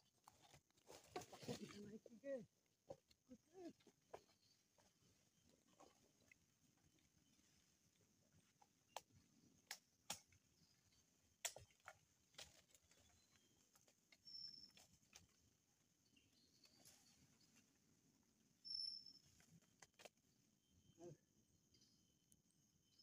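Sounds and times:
knocks and scrapes of tree climbing: 0:00.0 - 0:15.7, 0:19.2 - 0:20.4.

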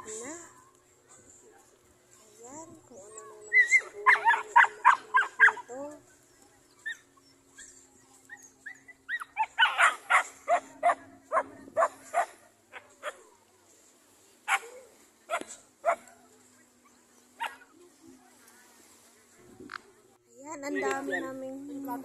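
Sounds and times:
dog barking: 0:03.6 - 0:05.7, 0:09.1 - 0:13.2, 0:14.5 - 0:16.1, 0:17.4 - 0:17.6.

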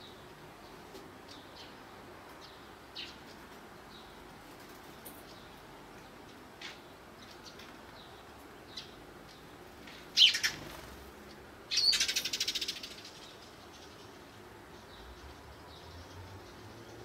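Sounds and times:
sparrow chirping: 0:00.0 - 0:04.2, 0:05.0 - 0:10.9, 0:11.7 - 0:17.0
bird rattling call: 0:10.1 - 0:11.0.

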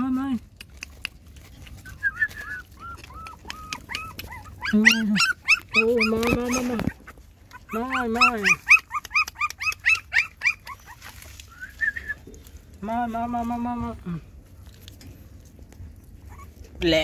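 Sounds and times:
puppies whimpering and yelping: 0:00.6 - 0:12.2, 0:15.9 - 0:17.0
puppy drawn-out calls: 0:00.7 - 0:11.9, 0:16.2 - 0:16.8.

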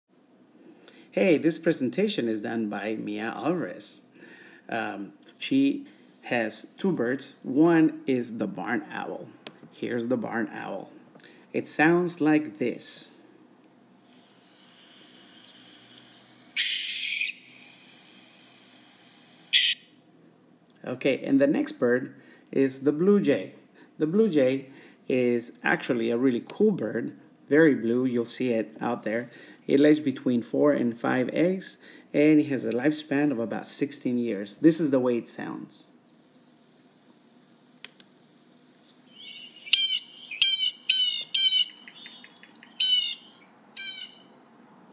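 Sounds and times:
barn owl screeching: 0:14.2 - 0:19.9, 0:39.1 - 0:44.3
blue jay calling: 0:14.3 - 0:19.8, 0:39.1 - 0:44.4.

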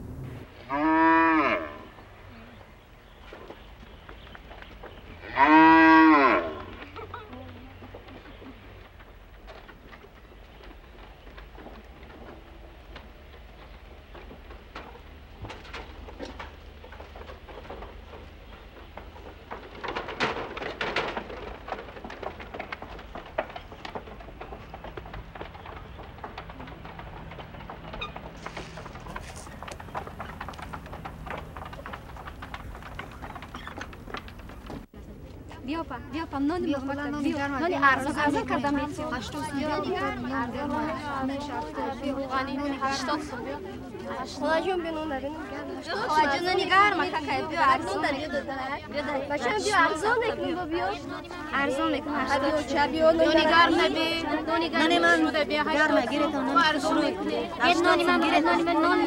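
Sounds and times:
cattle mooing: 0:00.0 - 0:01.9, 0:05.3 - 0:06.7
hooves tapping on footbridge: 0:00.0 - 0:59.0.

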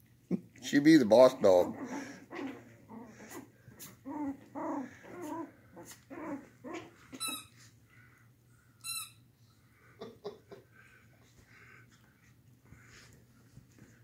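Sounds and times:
puppies growling and yipping: 0:01.5 - 0:07.6
puppy high-pitched squeals: 0:06.2 - 0:07.6.

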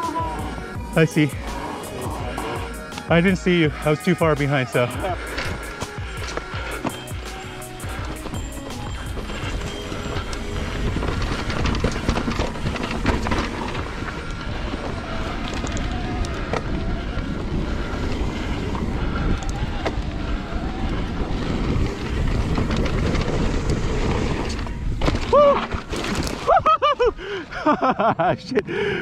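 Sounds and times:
tyres rolling over dirt: 0:00.0 - 0:28.2
bike chain and frame rattling: 0:04.8 - 0:27.0
wind rushing over microphone: 0:07.9 - 0:26.5.

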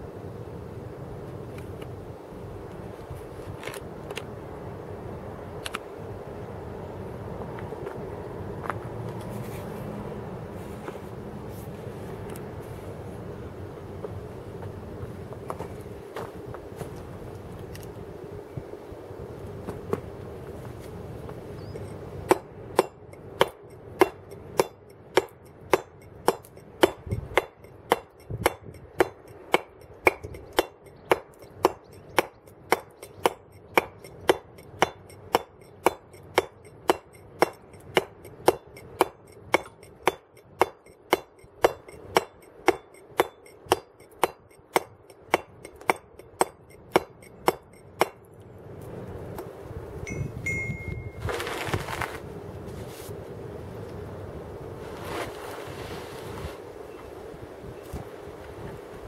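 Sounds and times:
mallet tapping chisel on stone: 0:22.3 - 0:48.2.

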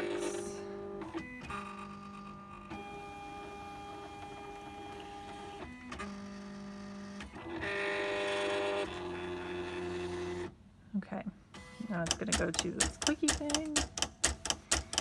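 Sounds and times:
cutting machine motors whirring: 0:00.0 - 0:10.5.

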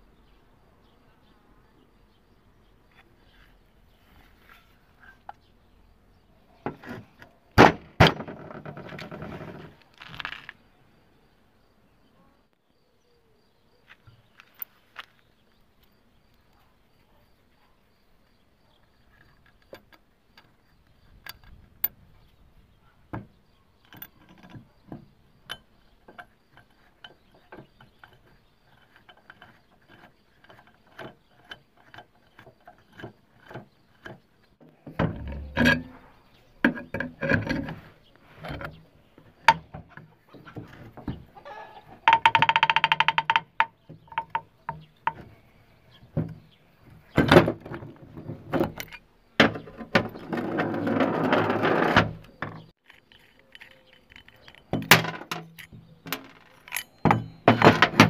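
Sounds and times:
metal knocks and scrapes: 0:06.6 - 0:10.5, 0:23.1 - 0:58.0
metallic clicks of tools on engine: 0:19.2 - 0:22.0, 0:52.8 - 0:57.9.

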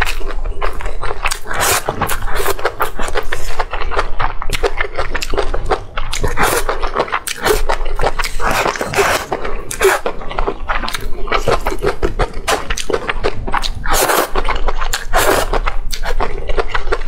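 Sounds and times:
chewing: 0:00.0 - 0:17.0
wet mouth clicks and smacks: 0:01.2 - 0:09.8
noodles being slurped: 0:01.3 - 0:03.7, 0:05.2 - 0:10.2, 0:10.8 - 0:16.2.

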